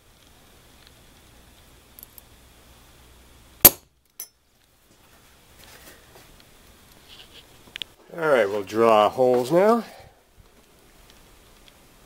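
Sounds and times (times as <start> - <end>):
center punch striking metal: 3.6 - 3.8.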